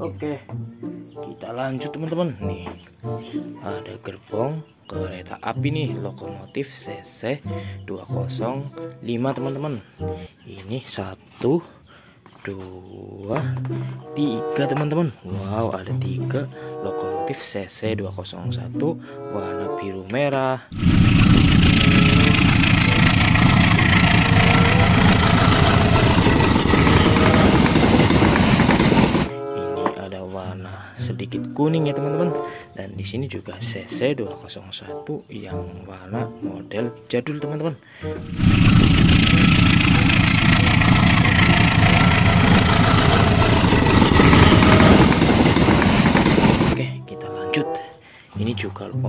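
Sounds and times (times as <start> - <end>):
locomotive engine running loudly: 20.7 - 29.4, 38.1 - 46.8.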